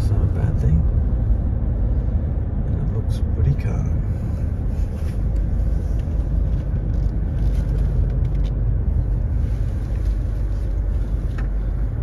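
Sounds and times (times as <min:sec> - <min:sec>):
car engine rumble: 0:00.0 - 0:12.0
road noise: 0:00.0 - 0:12.0.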